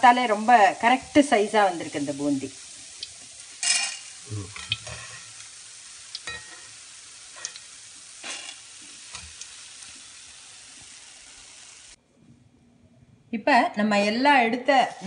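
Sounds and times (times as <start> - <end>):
batter frying in hot oil: 0.0 - 12.0.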